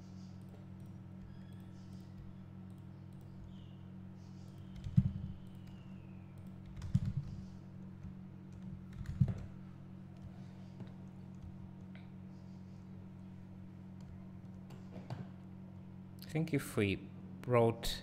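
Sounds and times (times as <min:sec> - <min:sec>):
low hum: 0:00.0 - 0:16.4
keyboard and mouse clicks: 0:06.4 - 0:07.4.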